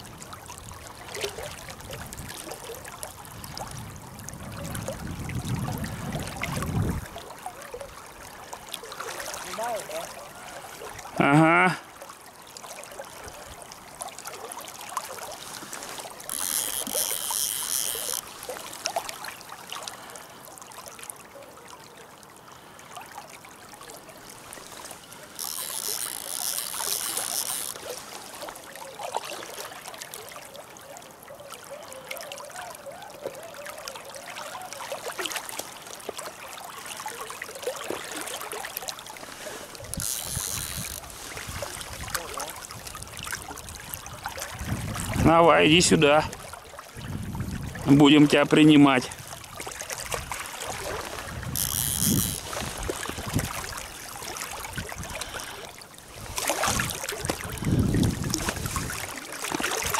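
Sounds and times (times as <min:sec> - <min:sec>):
river water rushing: 0:00.0 - 0:47.0, 0:47.8 - 0:59.9
fishing reel clicking: 0:16.2 - 0:18.3, 0:25.3 - 0:27.9, 0:39.9 - 0:41.1, 0:51.5 - 0:52.6.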